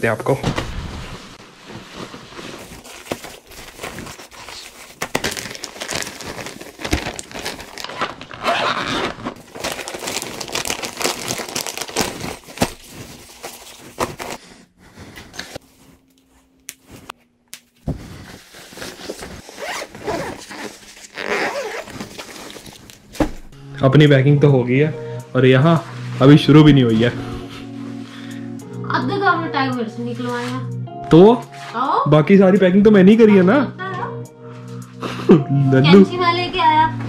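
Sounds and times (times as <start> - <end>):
clothing and plastic bags rustling: 0.3 - 23.6, 25.6 - 28.4
zipper pulled: 7.9 - 9.4, 18.2 - 22.6.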